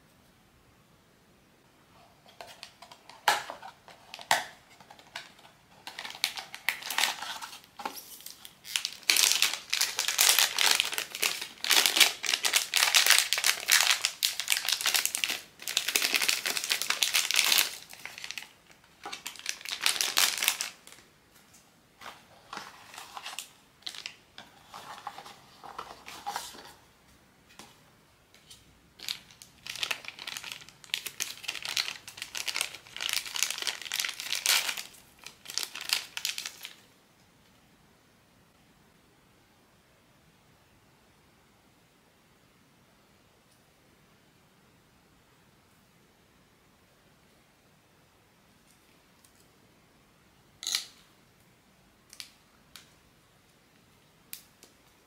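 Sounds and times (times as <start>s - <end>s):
packaging crinkling and tearing: 2.4s - 21.0s, 22.0s - 26.6s, 29.0s - 36.8s.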